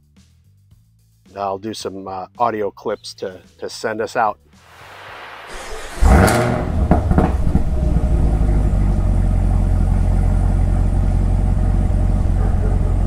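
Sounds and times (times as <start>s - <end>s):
car engine idling: 5.5s - 13.0s.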